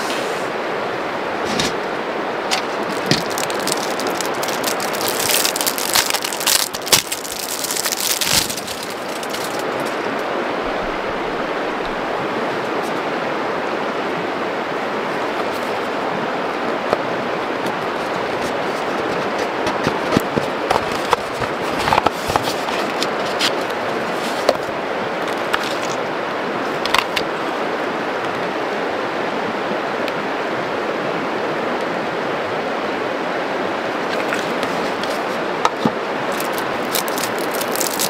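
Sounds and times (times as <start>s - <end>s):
river rushing: 0.0s - 38.0s
clicks and rustles of handling: 2.5s - 10.0s, 17.6s - 26.0s, 34.1s - 38.0s.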